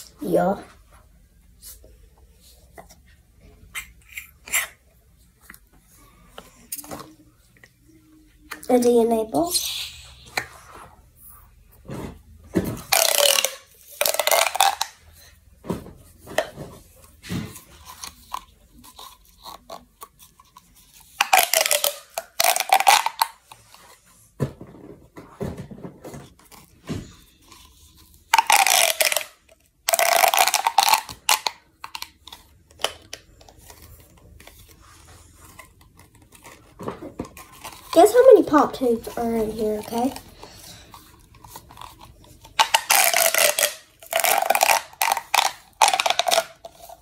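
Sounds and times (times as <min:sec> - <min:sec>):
plastic pop tube zipping: 0:12.6 - 0:15.0, 0:21.1 - 0:23.4, 0:28.3 - 0:32.1, 0:41.5 - 0:47.0.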